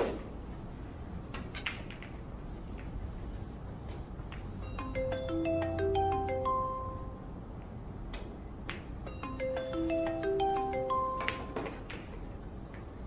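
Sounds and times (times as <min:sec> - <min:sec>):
marimba-like mallet melody: 0:04.8 - 0:07.2, 0:09.1 - 0:11.4.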